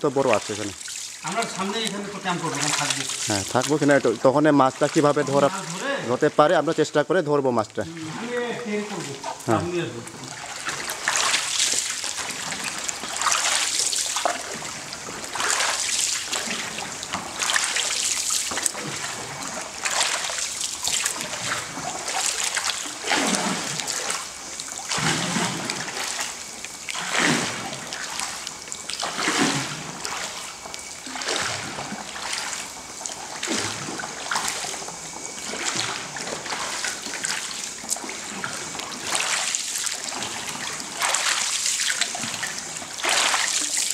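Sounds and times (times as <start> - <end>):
water dribbling off pole: 0.0 - 43.9
pole splashing into water: 15.3 - 24.2, 24.9 - 30.5, 35.4 - 43.9.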